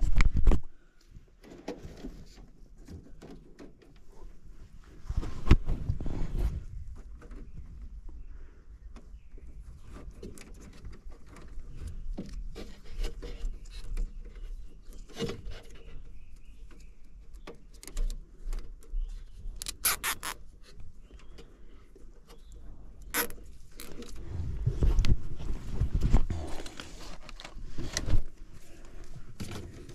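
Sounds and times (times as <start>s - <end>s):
wiring rustling and clicking: 9.0s - 29.9s
zip ties ratcheting: 19.6s - 20.4s.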